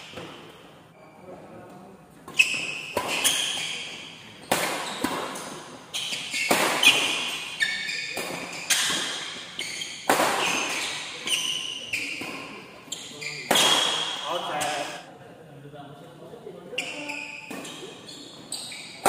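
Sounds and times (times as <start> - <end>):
racquets hitting shuttlecock: 2.3 - 12.6, 13.4 - 15.0.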